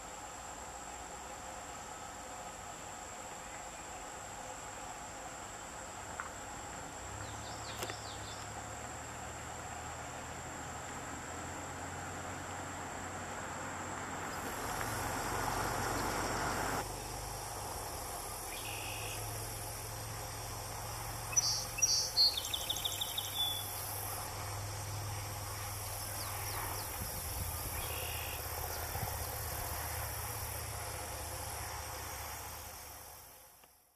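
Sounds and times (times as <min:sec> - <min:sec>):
crickets and insects chorus: 0:00.0 - 0:33.9
song sparrow singing: 0:18.5 - 0:19.2, 0:21.2 - 0:24.0, 0:25.7 - 0:29.6.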